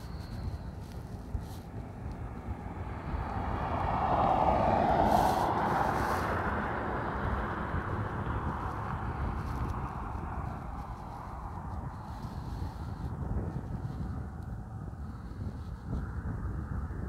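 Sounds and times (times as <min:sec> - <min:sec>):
vehicle passing on highway: 0:00.0 - 0:17.0.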